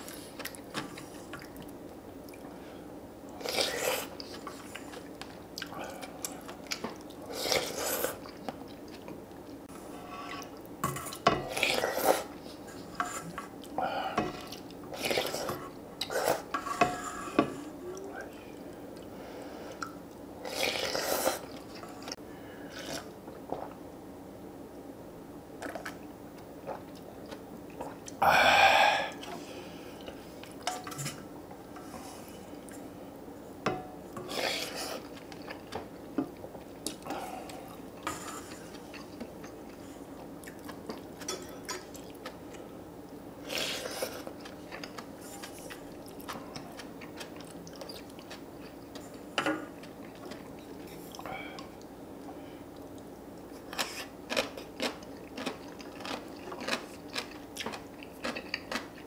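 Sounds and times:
chewing: 0:36.6 - 0:42.6, 0:43.4 - 0:59.0.

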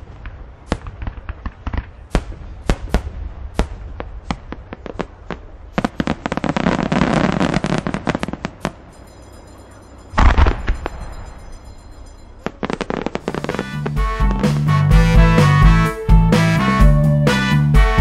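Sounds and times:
fireworks cracking: 0:00.0 - 0:09.6, 0:10.2 - 0:15.8
deep firework boom: 0:10.2 - 0:11.6.

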